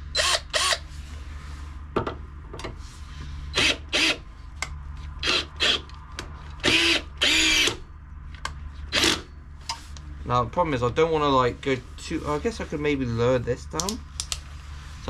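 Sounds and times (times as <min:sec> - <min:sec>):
cordless drill motor whirring: 0:00.1 - 0:00.9, 0:03.5 - 0:04.2, 0:05.2 - 0:05.9, 0:06.6 - 0:07.8, 0:08.9 - 0:09.2.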